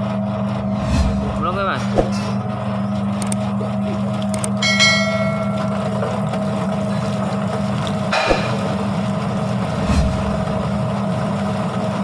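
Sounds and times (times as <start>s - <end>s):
peeling machine motor hum: 0.0s - 12.0s.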